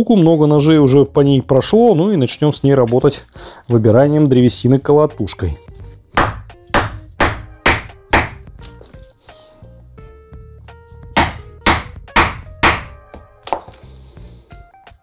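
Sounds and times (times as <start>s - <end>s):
background music: 0.0s - 15.0s
mallet knocking on knife spine: 6.2s - 8.5s, 11.2s - 13.7s.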